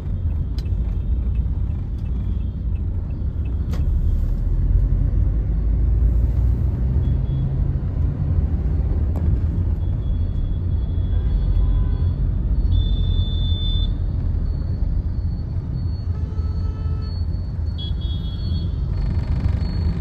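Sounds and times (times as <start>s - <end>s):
road and engine rumble in car: 0.0s - 20.0s
surrounding traffic: 0.0s - 20.0s.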